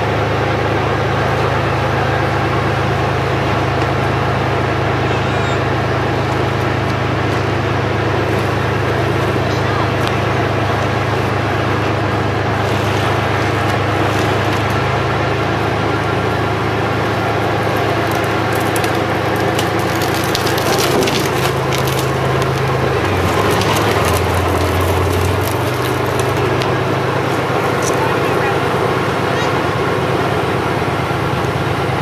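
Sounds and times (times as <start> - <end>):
tank diesel engine running: 0.0 - 32.0
wooden planks cracking: 17.5 - 28.0.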